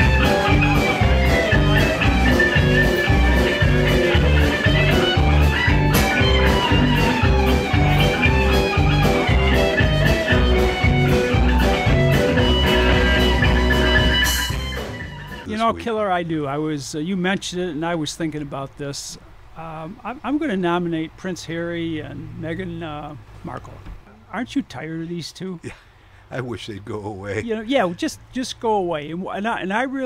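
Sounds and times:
blues-rock music with guitar: 0:00.0 - 0:15.5.

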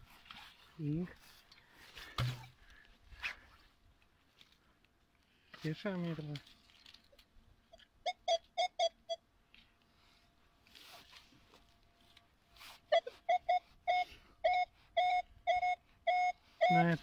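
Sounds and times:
soft scuffs of soil: 0:00.0 - 0:02.4, 0:09.5 - 0:12.9
metal detector beeping: 0:08.1 - 0:09.2, 0:12.9 - 0:17.0.

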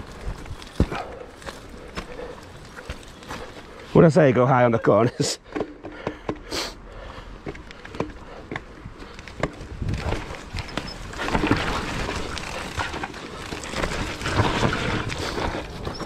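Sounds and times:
bike knocks and rattles: 0:00.0 - 0:03.7, 0:05.4 - 0:06.5, 0:07.4 - 0:16.0
bike tyre noise: 0:00.0 - 0:16.0
wind rushing over microphone: 0:09.6 - 0:10.7.

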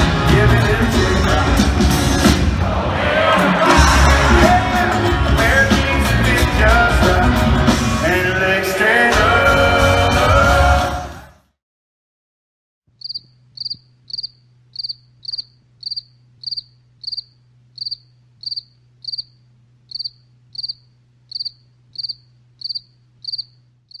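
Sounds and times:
cricket chirping: 0:13.0 - 0:24.0
low steady hum: 0:13.3 - 0:24.0.

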